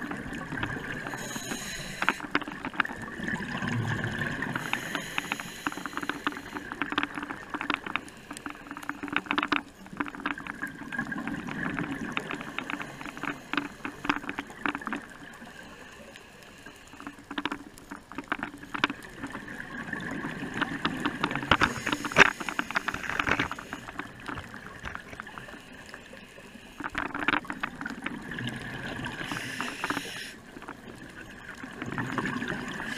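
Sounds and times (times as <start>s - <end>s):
bubbles gurgling underwater: 0.0s - 1.4s, 2.3s - 5.0s, 10.0s - 13.3s, 18.5s - 22.3s, 26.9s - 29.6s, 30.5s - 32.9s
diver's regulator breathing: 1.0s - 2.6s, 4.5s - 7.0s, 21.4s - 24.0s, 29.1s - 30.5s.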